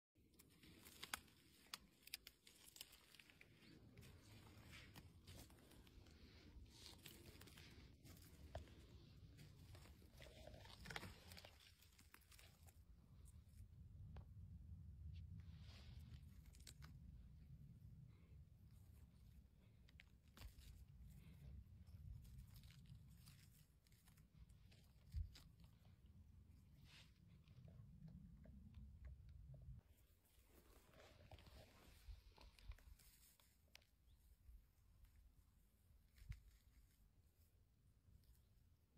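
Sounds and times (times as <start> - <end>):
twigs snapping: 0.3 - 12.8, 16.0 - 17.2, 19.8 - 25.9
mushrooms plucked from moss: 0.3 - 14.5, 15.4 - 18.0, 18.9 - 34.3
footsteps on dry twigs: 0.4 - 12.8
low rumble: 12.6 - 30.5.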